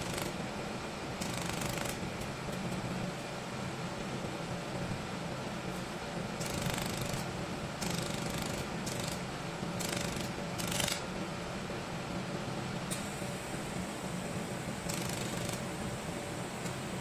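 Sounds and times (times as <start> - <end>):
machine hum: 0.0 - 17.0
laser welder hissing: 14.8 - 17.0.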